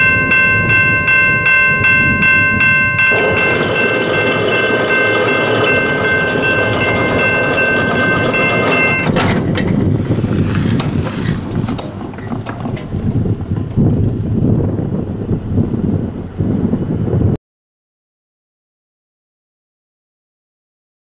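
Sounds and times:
railroad crossing bell ringing: 0.0 - 9.8
car driving over crossing: 3.0 - 16.0.

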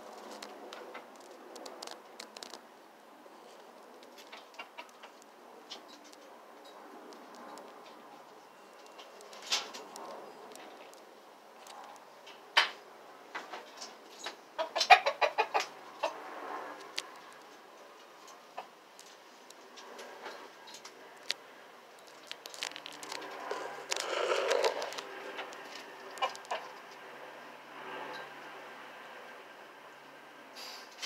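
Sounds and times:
roosters clucking: 3.3 - 6.8, 11.8 - 21.4, 22.0 - 27.0.

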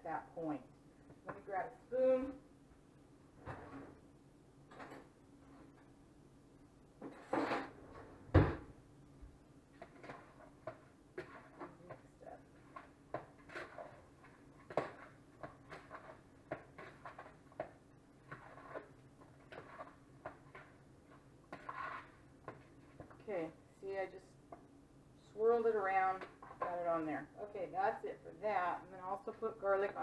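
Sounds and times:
metal spoon scraping plastic bowl: 9.8 - 23.2.

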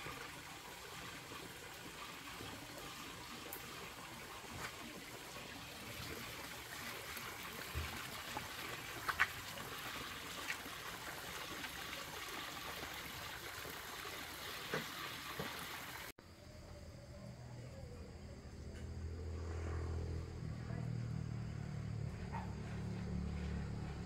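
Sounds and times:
running water trickling: 0.0 - 16.1.

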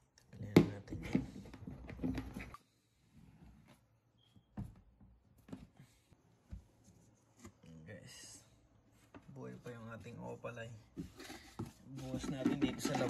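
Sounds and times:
plastic bucket lid knocks and scrapes: 10.9 - 13.0.

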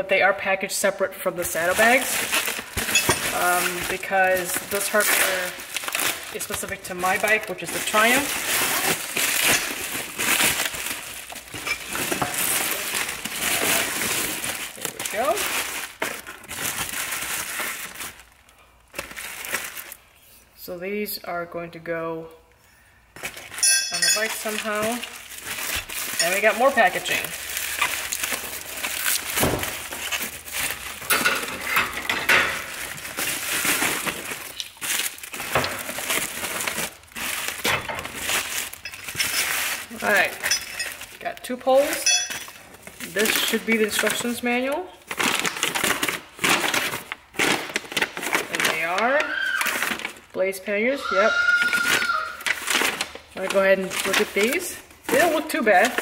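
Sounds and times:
bubble wrap crinkling: 0.9 - 20.6, 23.1 - 50.4, 51.0 - 56.0
metal hardware clinking: 2.8 - 3.3, 23.6 - 24.6, 40.4 - 41.0, 42.0 - 42.6.

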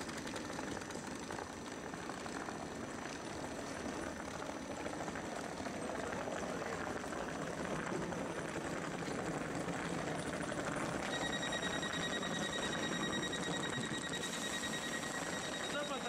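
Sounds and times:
rapid electronic warning beep: 10.4 - 16.0.

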